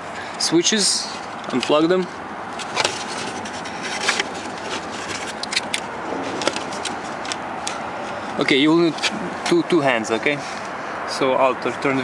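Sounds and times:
steady background noise: 0.0s - 12.0s
plastic scraping: 2.5s - 8.2s.

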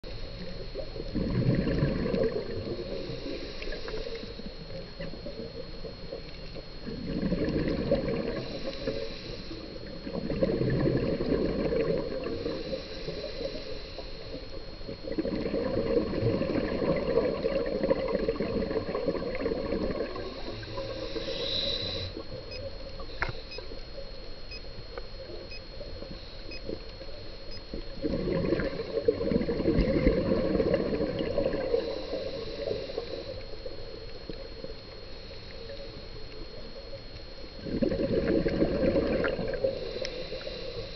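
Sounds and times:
bubbling underwater exhalations: 1.0s - 2.8s, 6.8s - 8.5s, 9.8s - 12.6s, 14.9s - 20.9s, 27.9s - 32.4s, 37.6s - 40.0s
hiss of inhaling: 2.7s - 4.5s, 8.3s - 9.8s, 12.3s - 14.4s, 20.2s - 22.2s, 31.6s - 33.6s, 39.6s - 40.9s.

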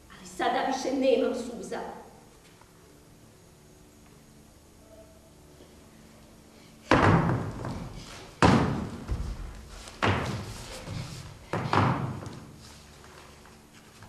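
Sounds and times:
heavy slams with echo: 6.8s - 12.3s.

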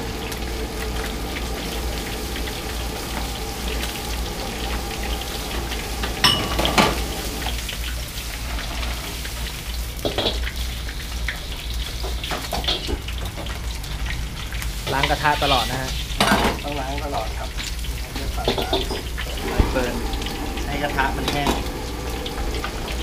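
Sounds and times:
fish deep-frying in oil: 0.0s - 23.0s.

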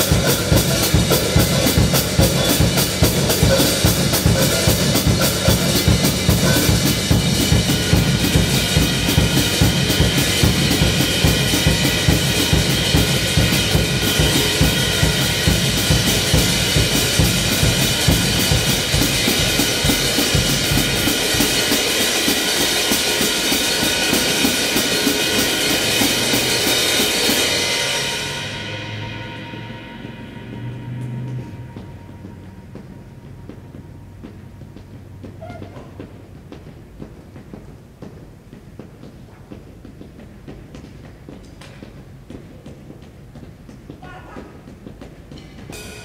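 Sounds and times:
drum kit groove: 0.0s - 46.0s
low sustained tone: 28.3s - 34.6s.

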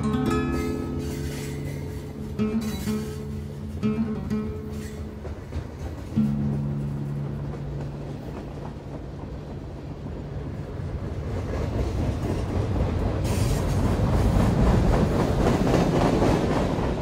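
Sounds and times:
train running on rails: 0.0s - 17.0s.

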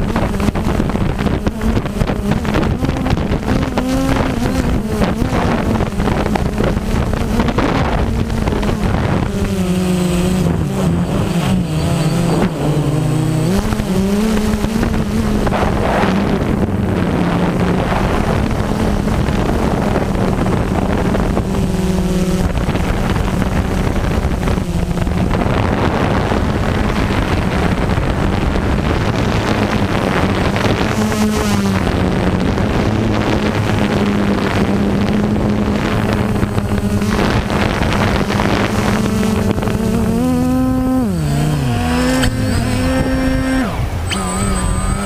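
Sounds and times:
drone propellers humming: 0.0s - 45.0s
wind on microphone: 0.0s - 45.0s.

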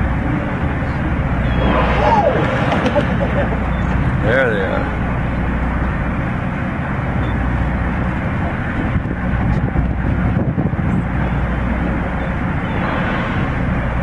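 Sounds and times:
boat engine humming: 0.0s - 14.0s
wind buffeting microphone: 8.1s - 14.0s.

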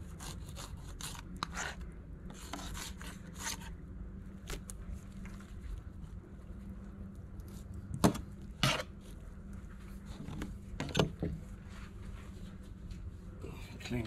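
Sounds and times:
knife scraping: 0.0s - 3.8s, 8.6s - 9.1s.

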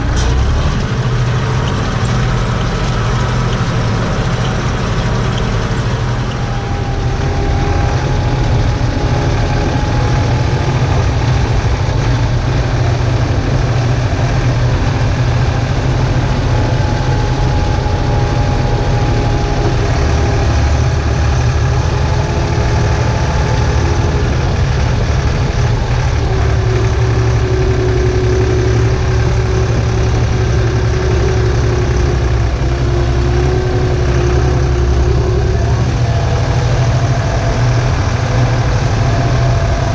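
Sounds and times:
faint whine: 0.0s - 39.9s
tractor diesel engine droning: 0.0s - 39.9s.

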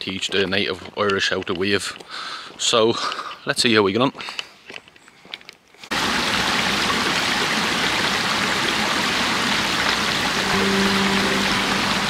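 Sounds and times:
stream water rushing: 5.9s - 12.0s.

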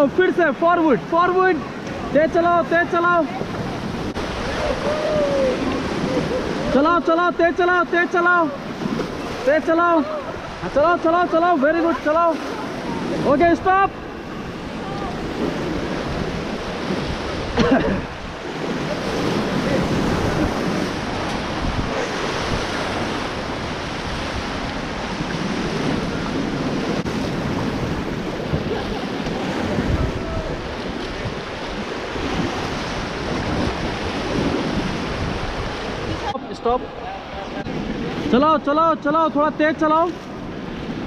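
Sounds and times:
whitewater roaring: 0.0s - 41.0s
wind buffeting microphone: 12.4s - 38.4s.

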